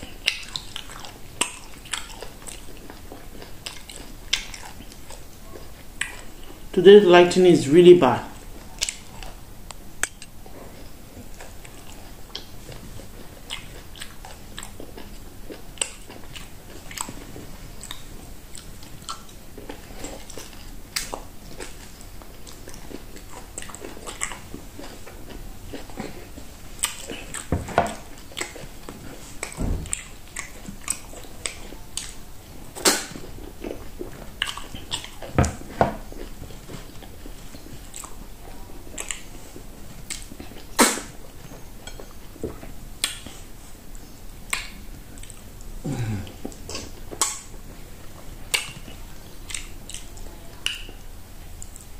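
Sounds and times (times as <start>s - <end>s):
person chewing food: 0.0s - 6.8s, 8.3s - 51.9s
wet mouth sounds: 40.0s - 41.2s.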